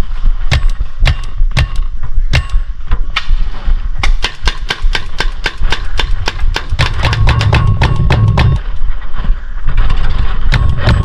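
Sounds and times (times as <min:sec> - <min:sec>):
paintball marker firing: 0:04.0 - 0:08.7.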